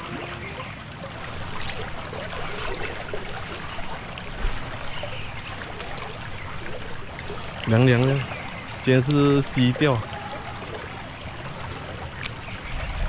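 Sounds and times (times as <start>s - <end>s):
river water flowing: 0.0s - 13.0s
small water splashes: 0.0s - 13.0s.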